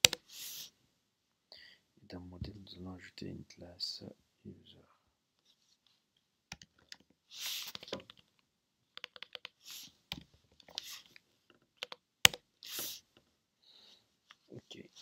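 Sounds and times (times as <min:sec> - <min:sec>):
keyboard typing: 0:00.0 - 0:00.2, 0:09.0 - 0:11.0, 0:11.8 - 0:12.4
short rushes of hiss: 0:12.6 - 0:13.1.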